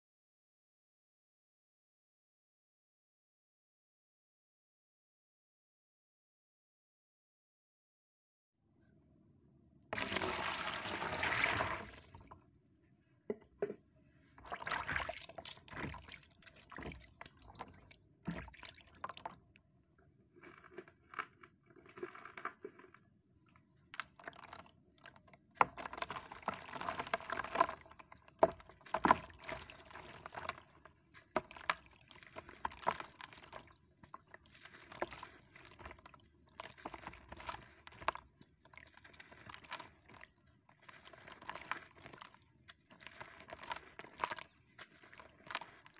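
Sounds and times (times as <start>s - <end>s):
water pouring into plastic basin: 9.9s - 12.5s, 14.4s - 19.5s, 23.8s - 45.9s
water splashing: 10.0s - 12.4s, 14.4s - 19.4s, 25.7s - 45.9s.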